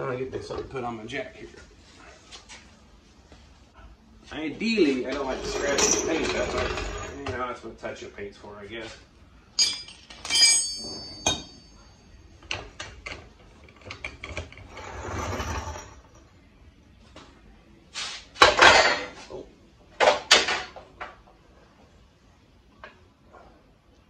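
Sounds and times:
metal parts rubbing and knocking: 0:05.1 - 0:07.5, 0:09.6 - 0:11.8
metallic clinks: 0:09.6 - 0:12.4.

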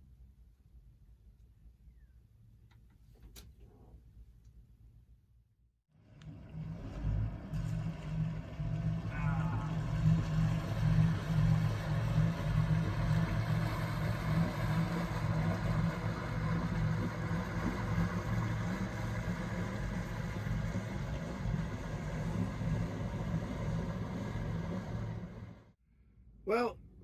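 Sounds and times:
boat engines droning: 0:05.9 - 0:25.8.

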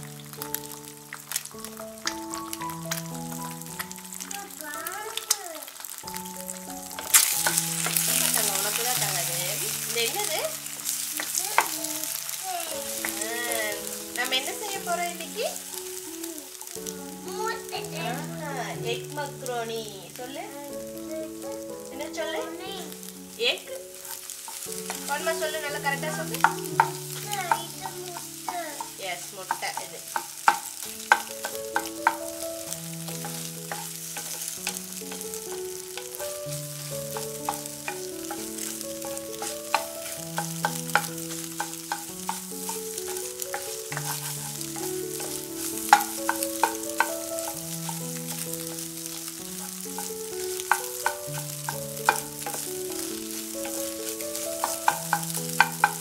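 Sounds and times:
egg frying in oil: 0:00.0 - 0:56.0
slow background music: 0:00.0 - 0:56.0
spatula scraping egg in pan: 0:23.9 - 0:56.0
spatula knocking against pan: 0:26.1 - 0:32.3, 0:37.1 - 0:56.0.

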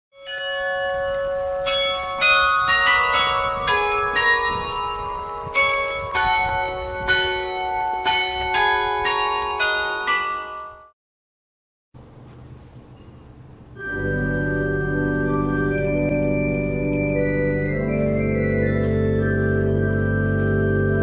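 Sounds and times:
church bells ringing: 0:00.2 - 0:10.9, 0:13.8 - 0:21.0.

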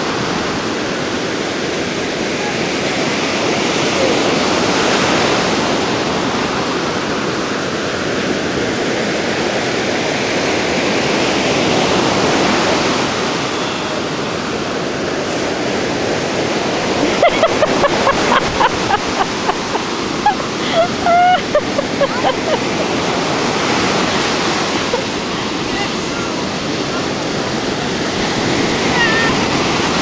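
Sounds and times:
ocean surf breaking: 0:00.0 - 0:30.0.

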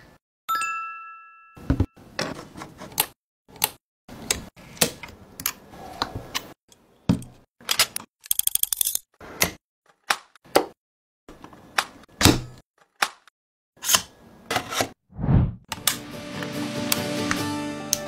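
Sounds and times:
metal parts clicking and tapping: 0:06.7 - 0:09.0.

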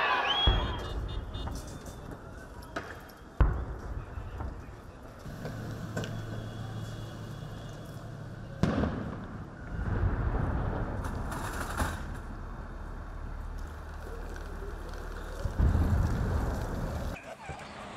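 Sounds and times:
street noise: 0:00.0 - 0:17.9
military vehicle engine humming: 0:05.2 - 0:08.9.

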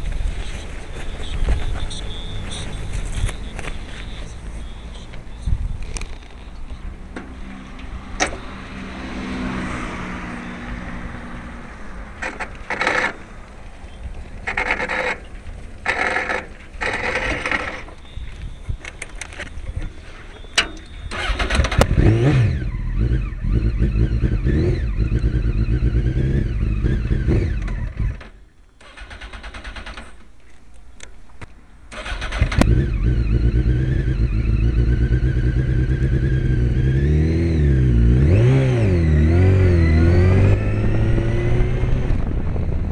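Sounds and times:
motorcycle engine accelerating: 0:21.0 - 0:28.2, 0:32.0 - 0:42.9.

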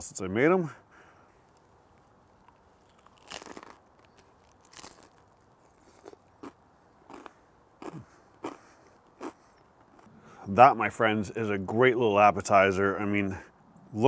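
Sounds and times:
chewing crunchy bread: 0:01.5 - 0:10.1.

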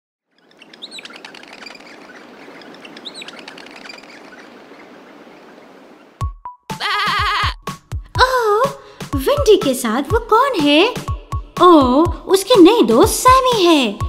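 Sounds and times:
birds chirping: 0:00.3 - 0:08.1
steady outdoor hiss: 0:00.4 - 0:09.2.

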